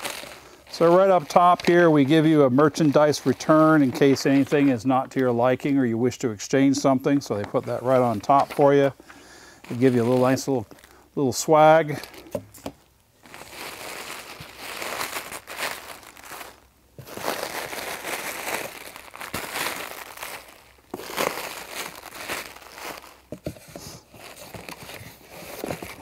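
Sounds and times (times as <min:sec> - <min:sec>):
bubble wrap crinkling: 0:00.0 - 0:26.0.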